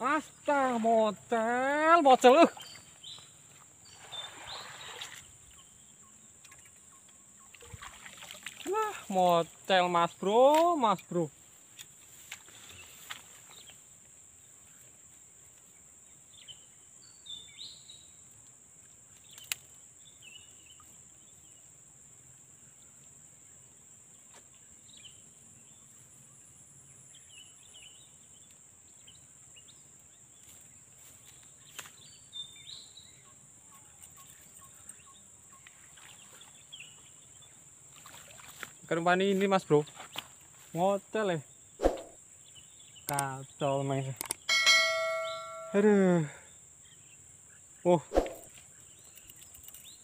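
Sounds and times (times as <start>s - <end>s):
short bird chirps: 41.8s - 42.2s
sharp clicks: 43.1s - 43.3s.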